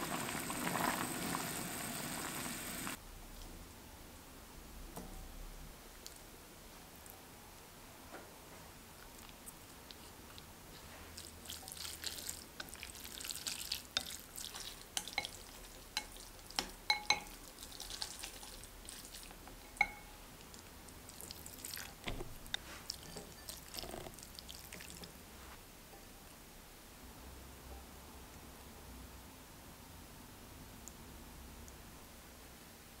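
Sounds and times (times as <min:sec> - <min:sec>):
chopsticks swishing wet noodles: 0:09.2 - 0:16.6
chopsticks clinking against glass: 0:14.0 - 0:16.2, 0:16.9 - 0:17.4.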